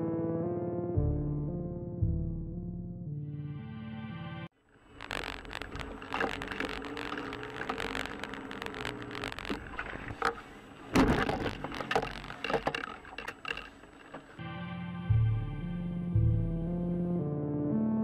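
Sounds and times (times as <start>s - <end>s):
tyre noise on wet road: 4.8s - 14.4s
clicks and knocks: 5.1s - 14.4s.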